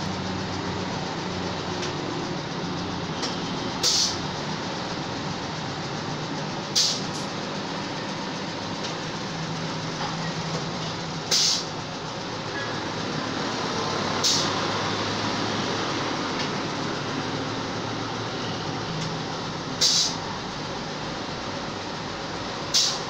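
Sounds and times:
air venting hiss: 3.8 - 4.2, 11.3 - 11.8, 19.8 - 20.3, 22.7 - 23.0.

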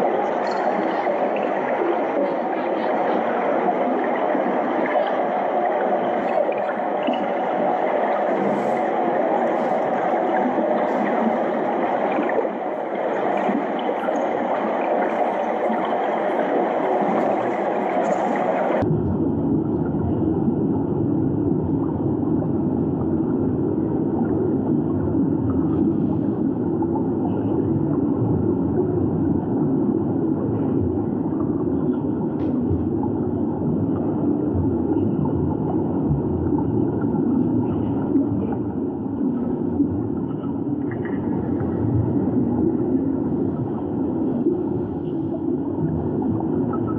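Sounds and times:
underwater rumble of moving water: 0.0 - 46.9
faint underwater clicks: 0.1 - 18.9, 30.6 - 46.9.

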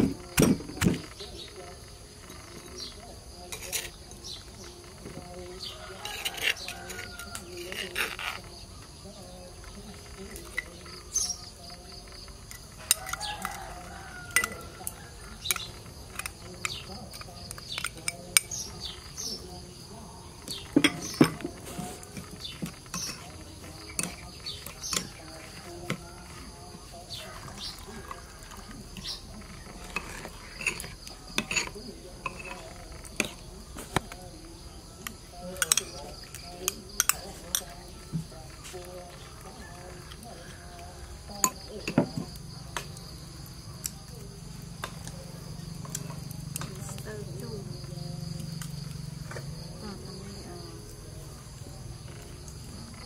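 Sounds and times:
insects chirping: 0.0 - 53.0
metal spoon clinking on bowl: 14.3 - 14.7, 29.8 - 32.7.

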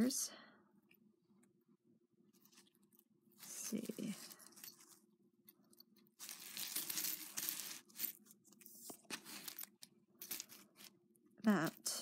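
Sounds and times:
metal necklace rustling and clinking: 2.4 - 11.0.

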